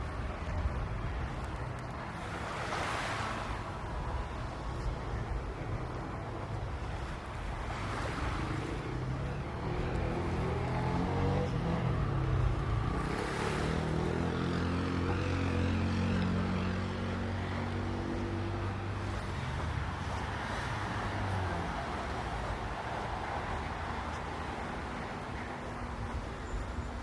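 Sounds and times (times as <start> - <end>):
small waves washing at shore: 1.3 - 11.0, 13.0 - 14.8, 16.2 - 23.6.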